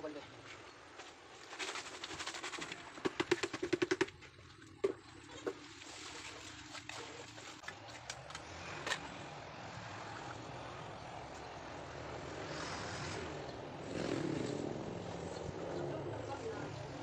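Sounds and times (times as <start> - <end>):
sharp taps on plastic bucket: 3.0 - 4.2.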